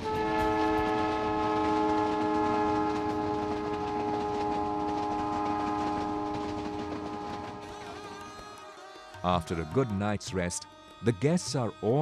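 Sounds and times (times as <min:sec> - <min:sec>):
train horn chord: 0:00.0 - 0:08.5.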